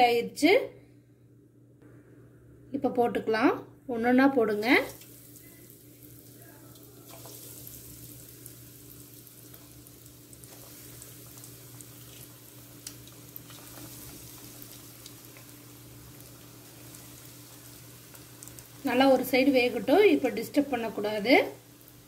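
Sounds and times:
faint steady hum: 0.0s - 22.0s
hot oil sizzling: 4.4s - 22.0s
small crackles: 4.8s - 18.9s.

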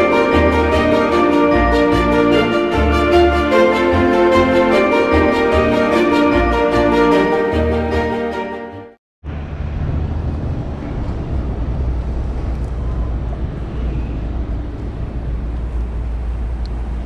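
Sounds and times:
background music: 0.0s - 9.0s
city ambience with low rumble: 9.2s - 17.0s.

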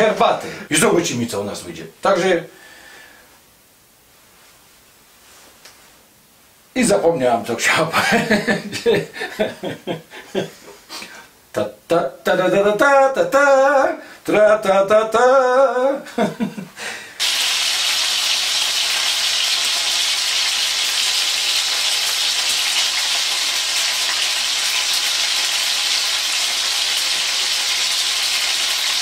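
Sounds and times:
food sizzling in hot oil: 17.2s - 29.0s.

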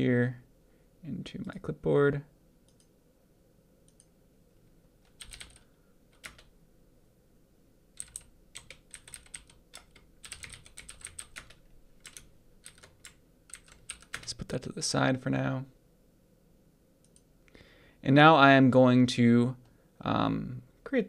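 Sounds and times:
keyboard typing: 5.0s - 6.5s, 8.0s - 14.4s.

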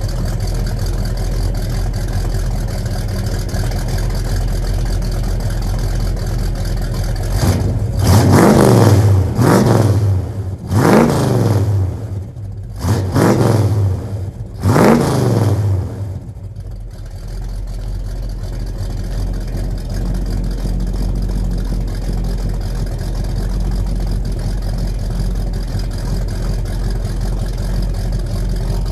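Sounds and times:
car engine revving: 0.0s - 17.2s
car engine idling: 0.0s - 28.9s.

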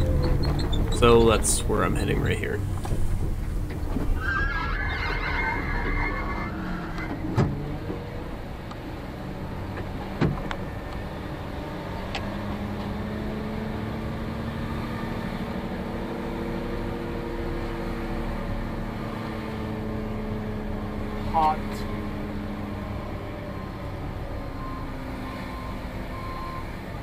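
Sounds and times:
diesel truck engine running: 0.0s - 4.2s.

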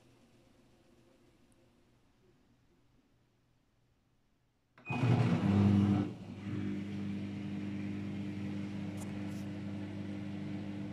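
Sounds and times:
washing machine spinning: 4.8s - 10.9s.

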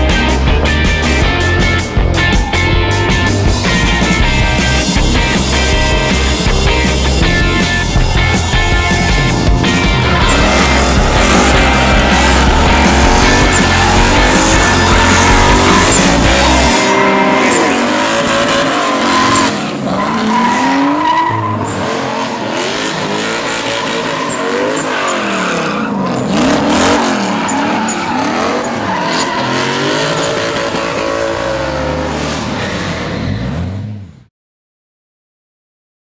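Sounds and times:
car engines revving: 0.0s - 34.2s
tyres squealing: 4.7s - 30.9s.

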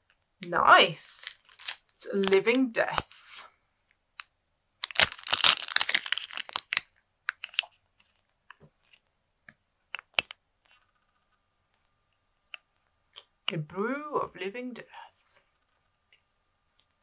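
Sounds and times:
plastic bag crinkling: 1.1s - 2.8s, 4.8s - 6.8s.

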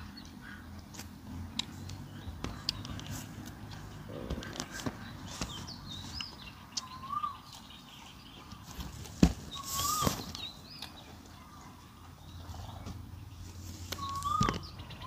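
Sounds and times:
birds chirping: 0.0s - 15.0s.

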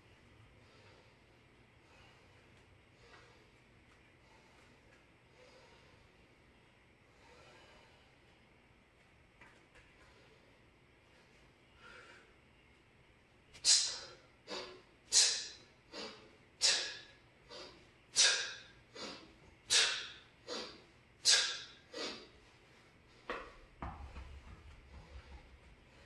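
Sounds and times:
person breathing forcefully: 0.6s - 6.3s, 7.0s - 8.3s, 13.6s - 26.0s.

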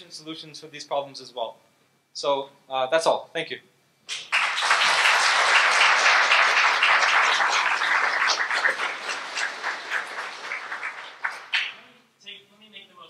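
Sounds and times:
audience applauding: 4.1s - 11.8s.

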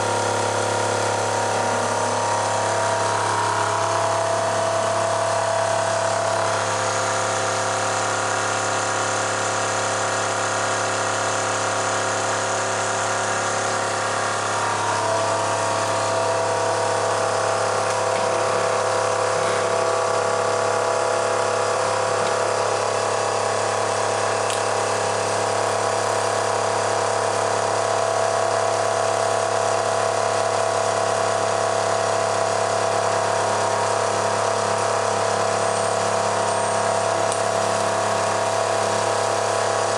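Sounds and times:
electric motor whine: 0.0s - 39.9s.

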